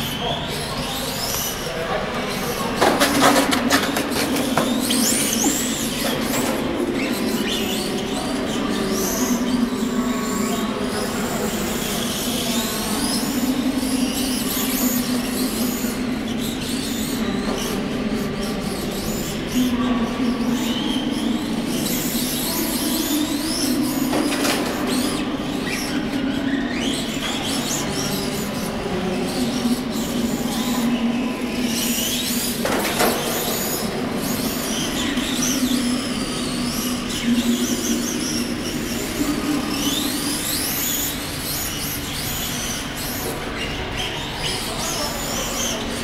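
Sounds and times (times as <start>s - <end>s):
rc car motor whine: 10.3s - 17.8s, 31.5s - 46.0s.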